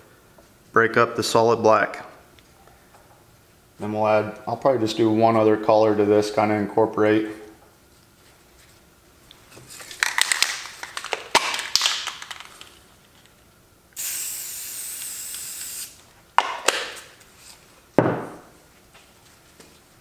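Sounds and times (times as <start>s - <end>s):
spray can rattling: 9.9s - 12.8s
spray paint hissing: 14.0s - 16.0s.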